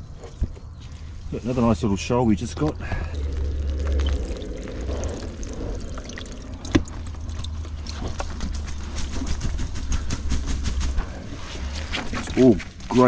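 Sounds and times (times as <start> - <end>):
water draining through net: 2.8 - 9.2.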